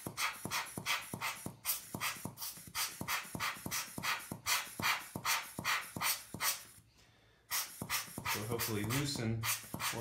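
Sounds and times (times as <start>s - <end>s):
rubber air blower puffing: 0.0s - 6.8s, 7.4s - 10.0s.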